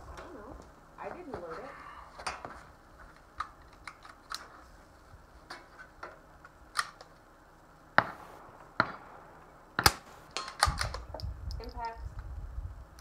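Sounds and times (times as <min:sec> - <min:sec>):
rifle handling clicks and knocks: 0:05.4 - 0:07.2, 0:09.8 - 0:12.0
suppressed rifle shot: 0:08.0 - 0:11.2.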